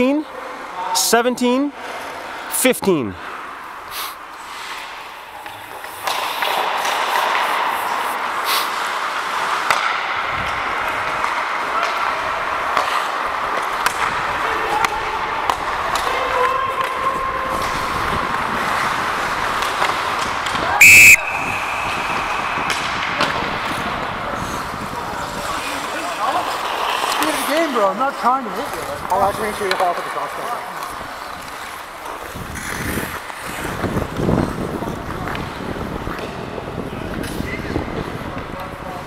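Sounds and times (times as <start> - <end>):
skates scraping on ice: 3.2 - 39.0
referee's whistle blast: 20.8 - 22.7.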